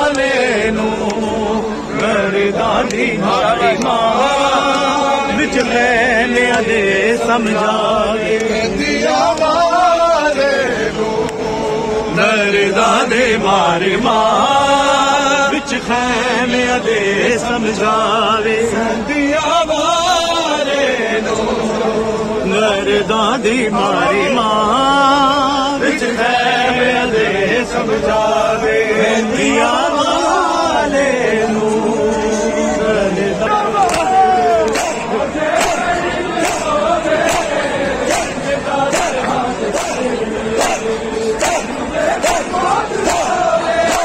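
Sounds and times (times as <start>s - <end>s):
mourning chant sung: 0.0s - 44.0s.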